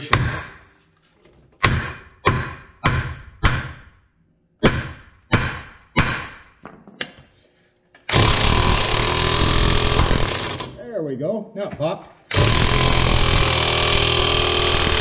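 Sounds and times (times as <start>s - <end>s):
impact wrench running: 8.0s - 10.8s, 12.3s - 15.0s.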